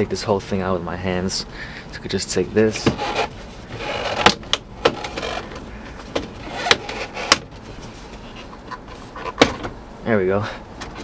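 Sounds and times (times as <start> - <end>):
plastic and metal scraping: 2.7 - 9.7.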